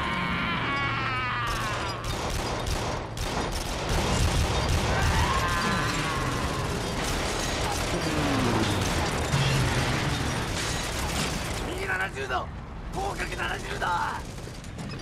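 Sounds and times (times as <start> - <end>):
din of combat: 3.8 - 14.4.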